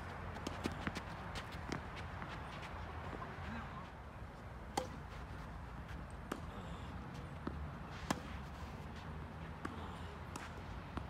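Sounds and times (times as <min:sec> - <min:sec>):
tennis ball struck by rackets: 0:04.7 - 0:05.1, 0:07.4 - 0:08.5
tennis ball bouncing: 0:04.7 - 0:05.2, 0:06.0 - 0:06.6, 0:07.2 - 0:11.0.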